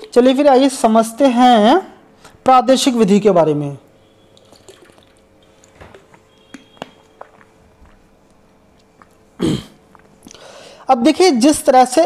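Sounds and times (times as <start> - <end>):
loud breath into microphone: 10.3 - 10.9.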